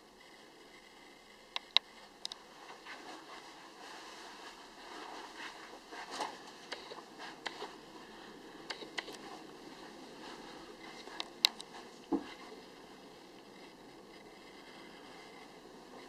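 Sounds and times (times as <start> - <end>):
small sharp clicks: 1.5 - 2.4.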